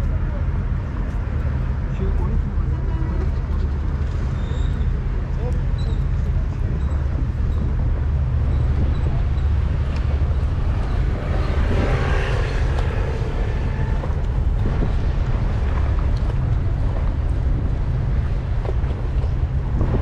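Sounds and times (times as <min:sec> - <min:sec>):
low traffic rumble: 0:00.0 - 0:20.0
vehicle passing: 0:09.2 - 0:16.7.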